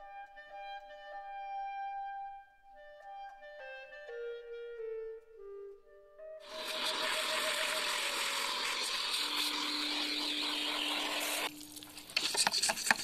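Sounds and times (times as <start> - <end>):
vacuum cleaner running: 6.4 - 11.5
water spattering: 6.4 - 12.4.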